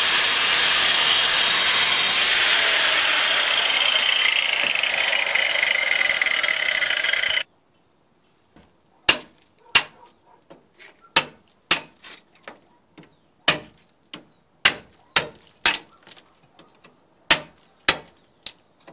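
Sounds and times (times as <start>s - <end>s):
angle grinder cutting concrete: 0.0s - 7.4s.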